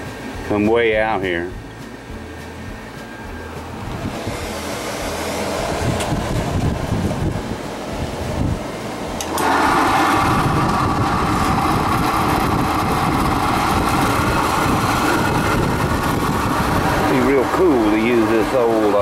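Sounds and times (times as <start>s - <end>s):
metal-cutting bandsaw humming: 3.9s - 6.7s, 9.2s - 19.0s.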